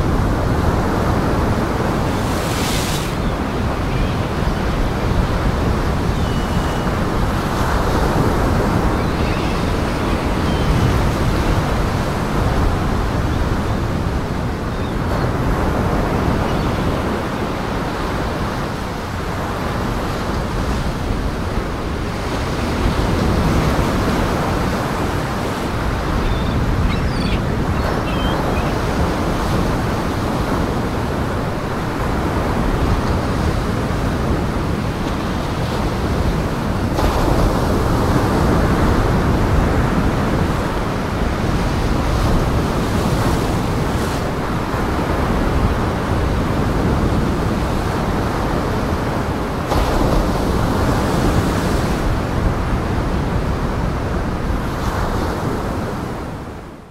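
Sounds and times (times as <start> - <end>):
strong wind: 0.0 - 56.9.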